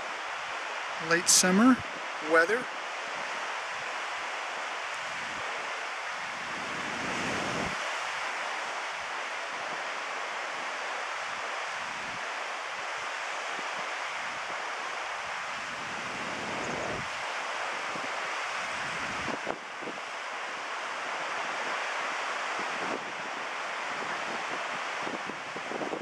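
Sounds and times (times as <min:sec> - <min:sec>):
ocean surf breaking on rocks: 0:00.0 - 0:26.0
wind buffeting microphone: 0:05.0 - 0:07.9, 0:15.4 - 0:20.1, 0:22.5 - 0:26.0.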